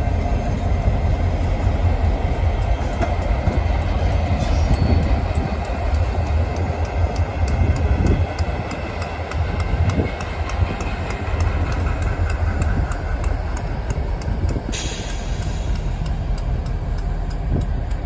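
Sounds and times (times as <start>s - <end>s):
diesel locomotives rumbling: 0.0s - 18.0s
wheels on rail: 0.0s - 18.0s
light regular ticking: 4.6s - 18.0s.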